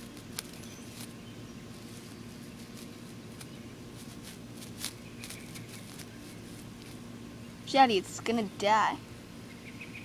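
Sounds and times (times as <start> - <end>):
rustling in grass: 0.0 - 7.4
steady low hum: 0.0 - 10.0.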